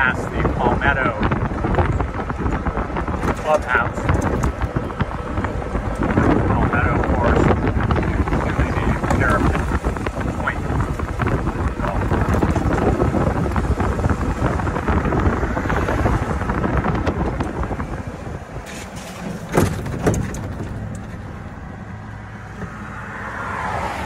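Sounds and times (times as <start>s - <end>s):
golf cart driving: 0.0s - 24.0s
sharp knocks: 19.3s - 20.9s.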